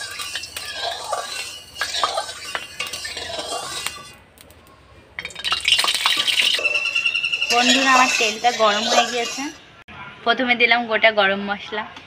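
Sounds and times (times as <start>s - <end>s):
metal spoon scraping metal pan: 0.0s - 4.2s, 5.5s - 9.8s.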